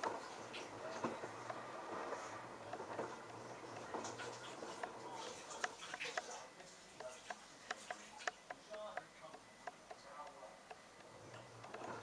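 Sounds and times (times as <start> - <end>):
washing machine hum: 0.0 - 12.0
laundry clicks and water splashes: 2.7 - 9.1.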